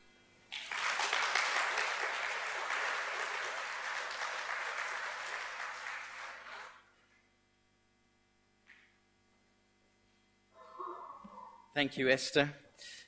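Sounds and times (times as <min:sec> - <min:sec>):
audience applauding: 0:00.5 - 0:06.9.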